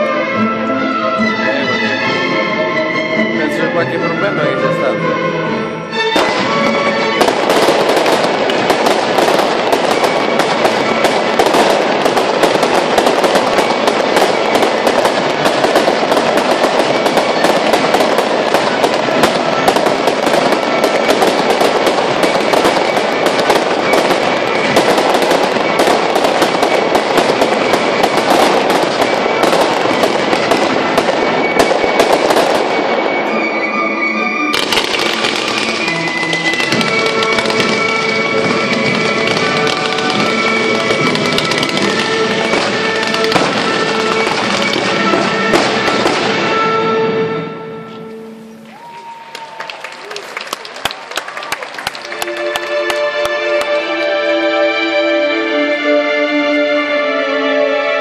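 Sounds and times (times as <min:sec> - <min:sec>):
fireworks bangs and crackles: 0:05.9 - 0:54.2.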